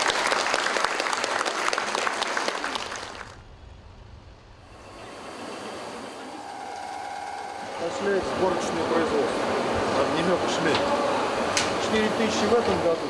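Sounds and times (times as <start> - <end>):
audience applauding: 0.0 - 3.4.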